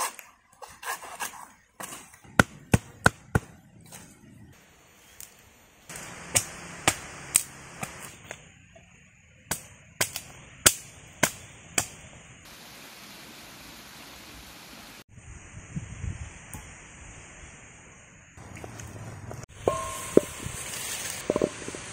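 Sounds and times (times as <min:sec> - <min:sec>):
machete chopping wood: 0:01.8 - 0:03.5
steady hiss: 0:04.6 - 0:21.9.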